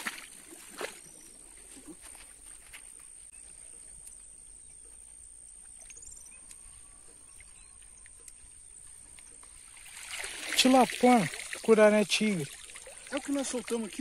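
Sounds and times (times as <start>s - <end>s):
faint bird chirps: 3.0s - 9.7s.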